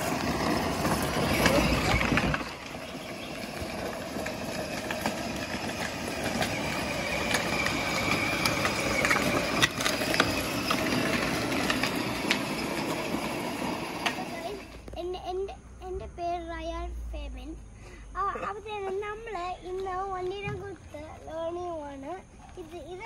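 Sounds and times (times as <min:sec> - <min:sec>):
toy electric motor whine: 0:00.0 - 0:14.9
plastic wheels clicking on asphalt: 0:00.0 - 0:15.0.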